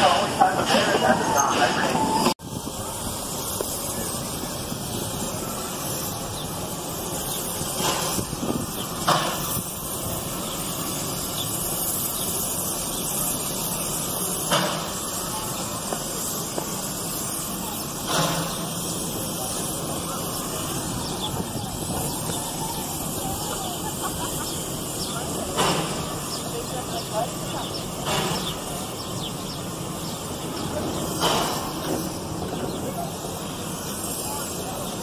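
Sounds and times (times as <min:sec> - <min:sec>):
wind rushing over microphone: 0:02.0 - 0:05.6, 0:20.6 - 0:23.7.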